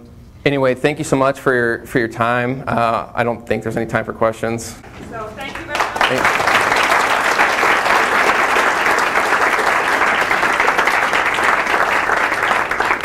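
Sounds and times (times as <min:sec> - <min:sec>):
audience applauding: 0:05.4 - 0:13.0.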